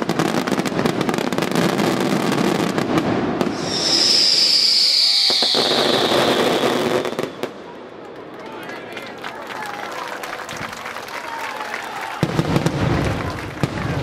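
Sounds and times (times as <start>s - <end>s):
fireworks crackling pops: 0.0s - 7.6s, 12.2s - 14.0s
shrill falling firework whistle: 3.4s - 7.5s.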